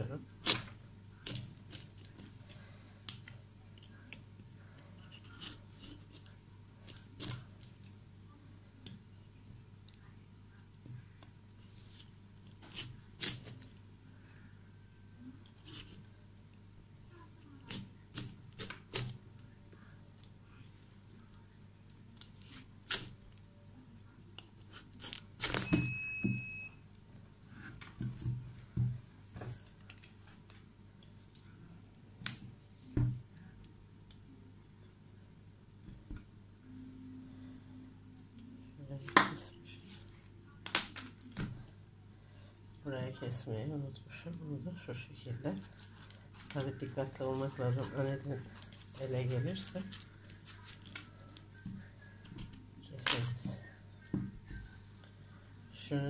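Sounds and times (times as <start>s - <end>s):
knife cutting pumpkin rind: 5.0s - 7.5s
pumpkin cracking apart: 40.6s - 41.5s.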